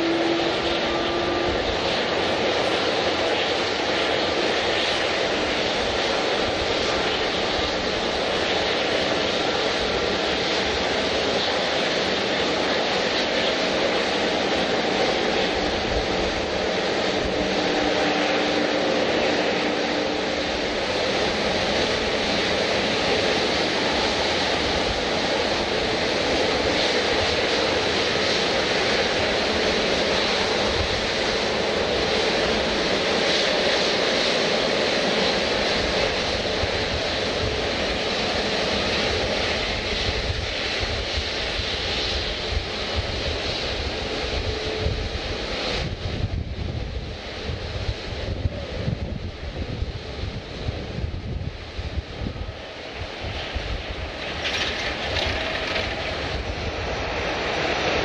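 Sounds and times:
airliner engines running: 0.0s - 58.0s.

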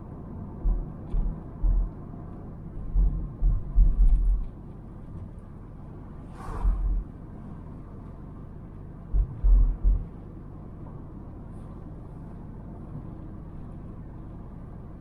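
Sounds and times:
car road noise: 0.0s - 15.0s
low rumbling thumps: 0.6s - 2.0s, 2.8s - 4.5s, 6.6s - 7.1s, 9.1s - 10.2s
brief hiss: 6.3s - 6.8s.

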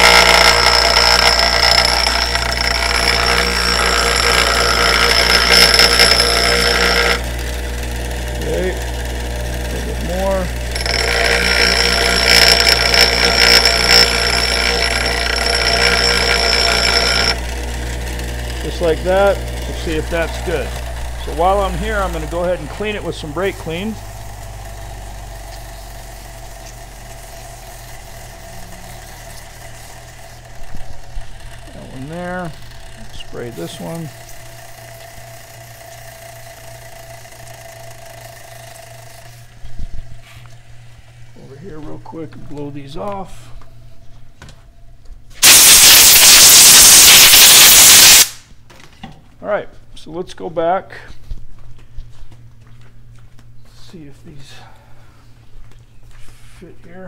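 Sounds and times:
grinding wheel on metal: 0.0s - 39.8s, 45.4s - 48.4s
grinder motor hum: 0.0s - 43.7s, 45.4s - 48.5s
aerosol can spraying hiss: 45.4s - 48.4s.

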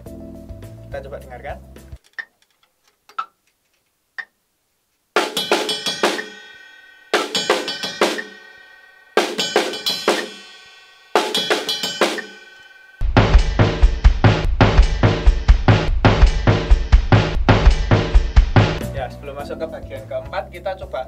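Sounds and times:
snare and cymbal bell figure: 5.2s - 13.9s.

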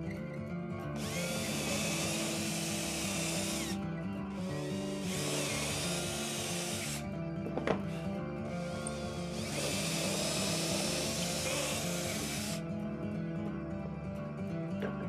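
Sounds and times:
cordless drill boring into plywood: 1.0s - 7.0s, 8.5s - 12.6s.

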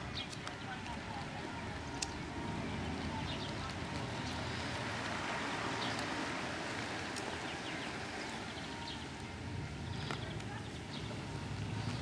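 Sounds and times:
small birds chirping: 0.0s - 1.0s, 2.8s - 6.3s, 7.0s - 12.0s
distant traffic hum: 0.0s - 12.0s
wind: 0.0s - 12.0s.

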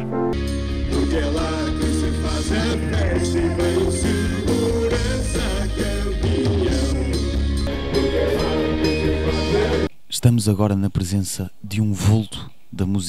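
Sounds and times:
rock band playing: 0.0s - 9.9s
man singing: 0.9s - 9.9s.

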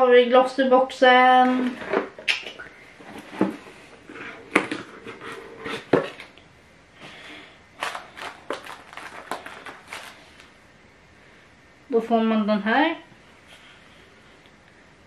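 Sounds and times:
cardboard and paper rustling: 7.8s - 10.5s.

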